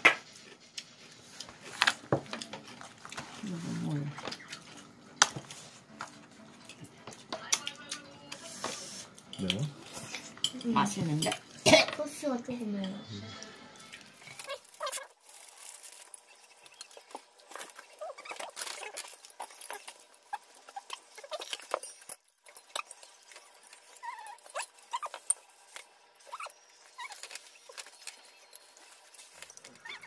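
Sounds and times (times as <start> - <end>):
chewing and slurping: 16.1 - 30.0.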